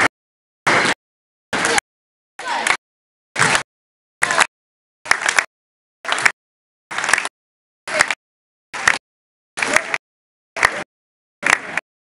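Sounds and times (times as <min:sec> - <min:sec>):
basketball game gym noise: 0:02.4 - 0:02.8.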